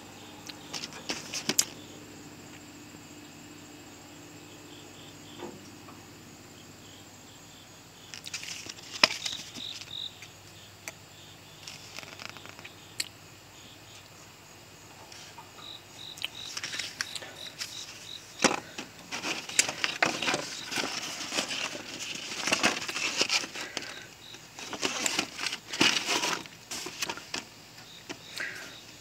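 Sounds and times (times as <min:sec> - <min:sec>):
grill mat crinkling and rustling: 0:00.6 - 0:01.8, 0:08.1 - 0:10.0, 0:11.6 - 0:12.6, 0:16.4 - 0:28.6.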